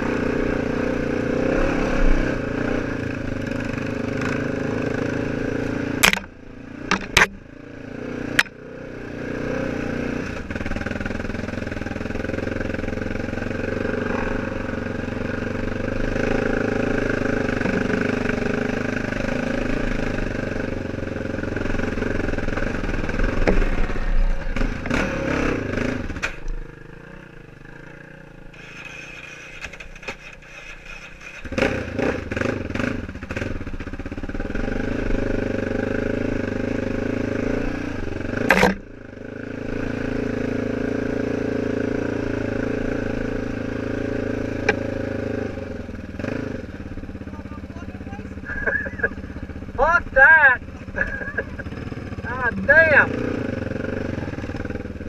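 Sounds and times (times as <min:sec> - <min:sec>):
atv engine running: 0:00.0 - 0:55.0
sharp knocks: 0:06.0 - 0:06.3, 0:06.9 - 0:07.4, 0:38.5 - 0:38.8.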